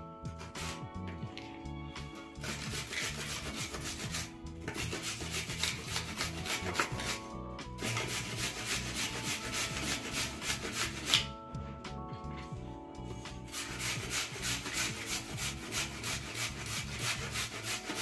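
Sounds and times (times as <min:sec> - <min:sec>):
soft background music: 0:00.0 - 0:18.0
carrots grated on metal grater: 0:02.4 - 0:07.2, 0:07.8 - 0:11.2, 0:13.5 - 0:18.0.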